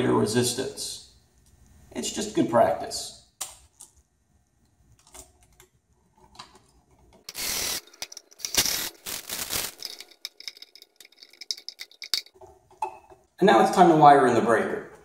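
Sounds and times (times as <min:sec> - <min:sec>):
cordless drill driving screws: 0:07.3 - 0:07.9.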